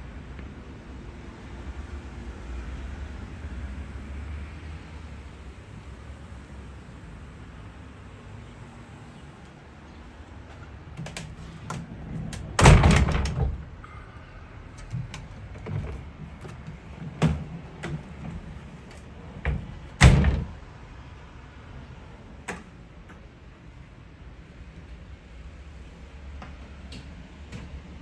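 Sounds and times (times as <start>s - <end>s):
sliding doors knocking shut: 11.0s - 13.7s, 14.9s - 20.6s.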